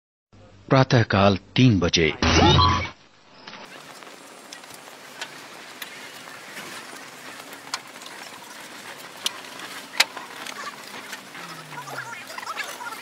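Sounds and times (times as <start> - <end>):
steady background hiss: 3.0 - 11.4.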